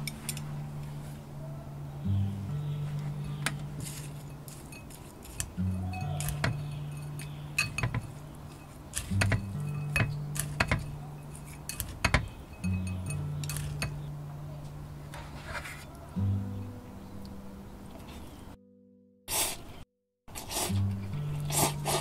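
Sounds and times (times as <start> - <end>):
background music with bass line: 1.7 - 4.5, 9.1 - 11.4, 12.6 - 14.5
chopsticks tapping a bowl: 3.3 - 14.1.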